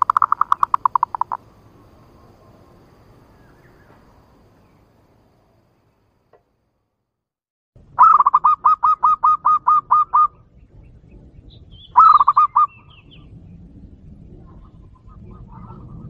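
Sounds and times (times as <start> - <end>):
dove cooing call: 0.0 - 1.4, 8.0 - 10.4, 11.9 - 13.2
small birds chirping: 0.0 - 1.4, 2.1 - 6.2, 9.8 - 13.3.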